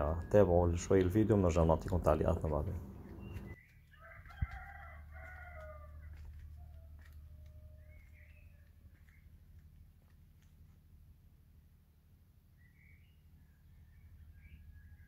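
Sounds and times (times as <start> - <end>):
steady low hum: 0.0 - 3.6
rooster crowing faintly: 3.4 - 8.5.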